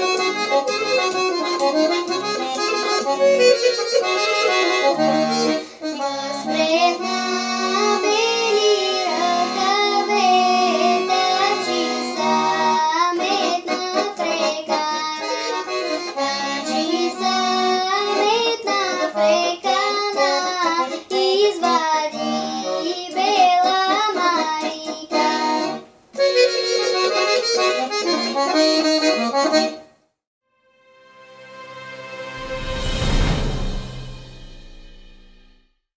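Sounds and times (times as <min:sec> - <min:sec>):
accordion: 0:00.0 - 0:30.1
girl singing folk song: 0:05.6 - 0:25.9.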